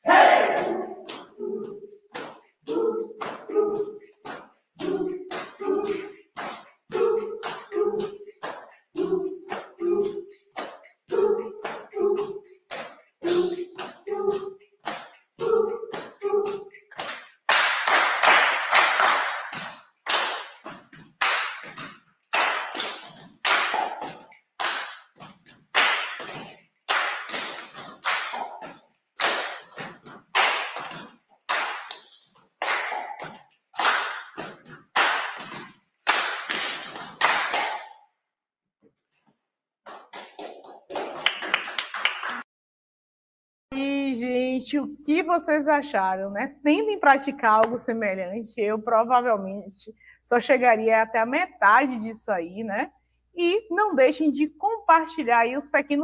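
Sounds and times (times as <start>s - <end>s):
people singing short syllables: 0.0s - 2.0s, 2.6s - 6.2s, 6.9s - 12.6s, 13.2s - 14.7s, 15.4s - 16.9s
hand claps and body slaps: 0.1s - 38.1s, 39.2s - 42.5s.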